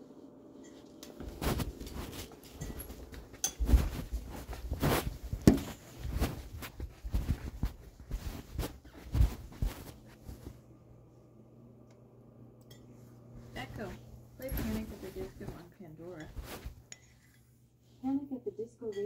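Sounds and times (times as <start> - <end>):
phone handling bumps and rustles: 1.2 - 10.4.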